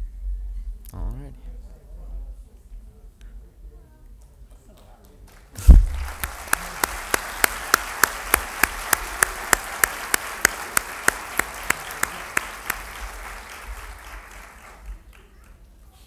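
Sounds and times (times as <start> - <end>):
close hand claps: 4.8 - 15.7
audience applauding: 5.3 - 15.7
low thump: 5.6 - 6.2.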